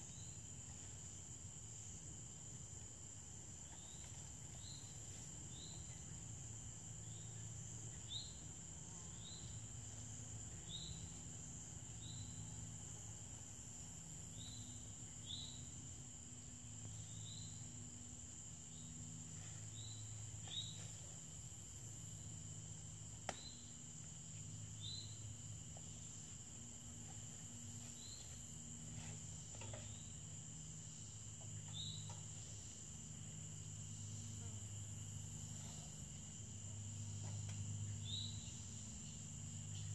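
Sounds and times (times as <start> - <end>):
crickets droning: 0.0 - 39.9
short high insect chirp: 23.3 - 26.3, 27.9 - 33.0, 37.0 - 39.9.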